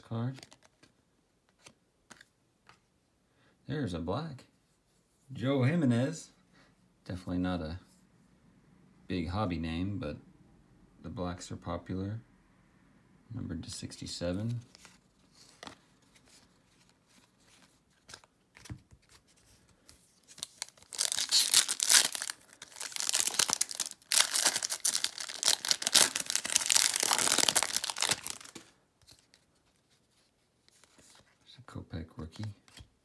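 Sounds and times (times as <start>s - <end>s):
foil wrapper tearing and crinkling: 20.4s - 28.6s.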